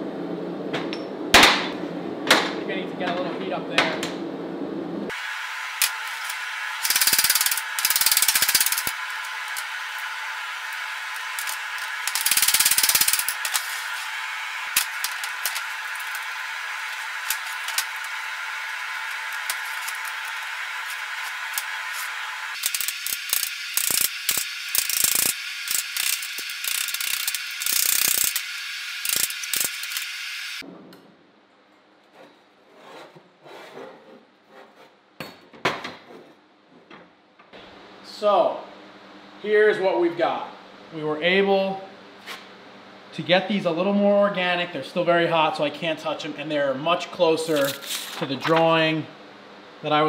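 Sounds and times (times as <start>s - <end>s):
forge burner roaring: 0.0s - 31.0s.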